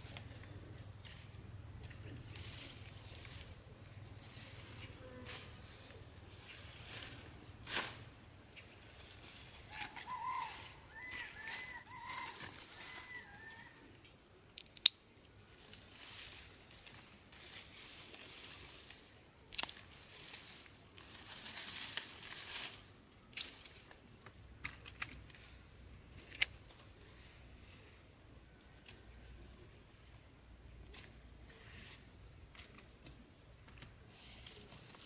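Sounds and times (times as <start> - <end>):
high-pitched insect buzz: 1.0 - 7.2.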